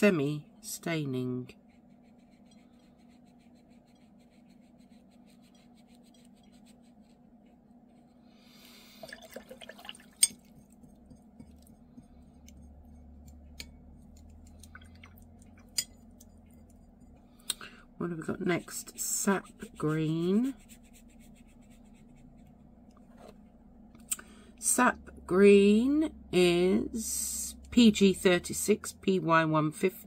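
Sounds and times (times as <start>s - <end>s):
steady low hum: 0.0s - 30.0s
brush swishing: 1.5s - 9.0s, 9.8s - 17.3s, 18.1s - 23.4s
brush clinking against glass jar: 9.6s - 17.2s.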